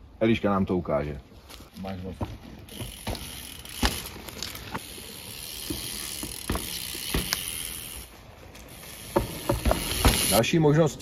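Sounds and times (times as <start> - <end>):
bike tyres rolling on dirt: 0.4 - 11.0
wheels knocking on wooden boards: 5.5 - 7.6, 9.0 - 10.4.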